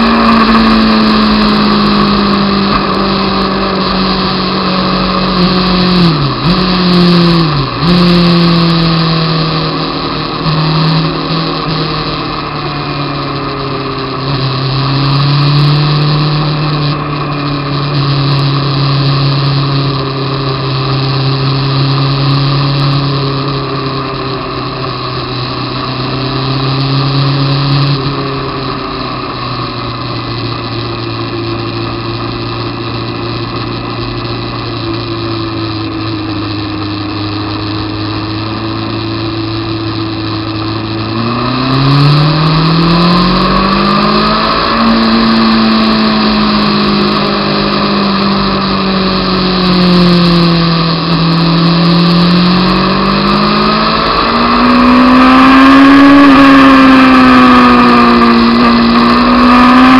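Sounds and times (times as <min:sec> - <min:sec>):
motorcycle engine revving: 0:00.0 - 0:59.9.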